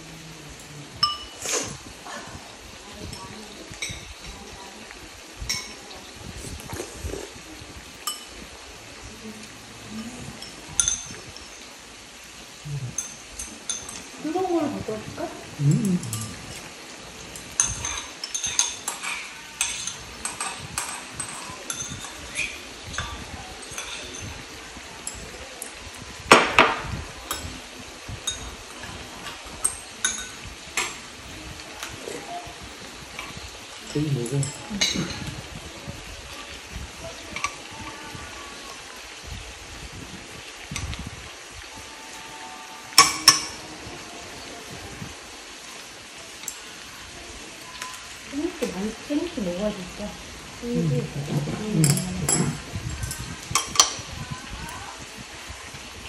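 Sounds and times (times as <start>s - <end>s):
gas stove hiss: 0.0s - 56.0s
metal utensils clinking on dishes: 0.5s - 4.8s, 5.4s - 7.3s, 8.0s - 8.6s, 9.9s - 11.8s, 12.6s - 14.8s, 15.6s - 35.5s, 36.4s - 38.5s, 42.4s - 44.8s, 45.7s - 46.8s, 47.6s - 49.3s, 51.3s - 54.2s.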